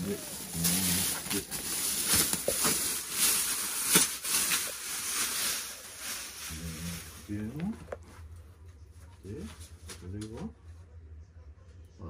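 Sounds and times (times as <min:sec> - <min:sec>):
plastic wrapping crinkling: 0:00.0 - 0:08.4.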